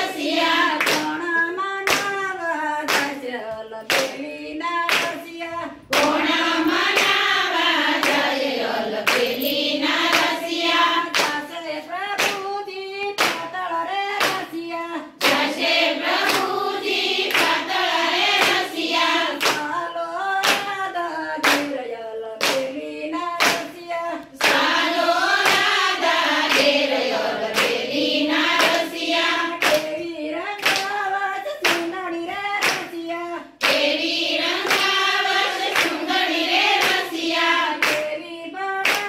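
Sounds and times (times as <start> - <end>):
hands clapping in a steady beat: 0.0 - 39.0
women singing together: 0.0 - 39.0.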